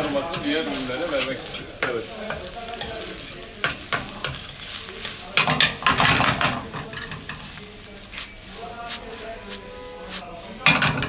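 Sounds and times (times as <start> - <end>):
utensil clacking against pan: 0.0 - 7.6, 10.6 - 11.0
food sizzling in a wok: 0.0 - 11.0
metal utensil scraping a wok: 0.0 - 11.0.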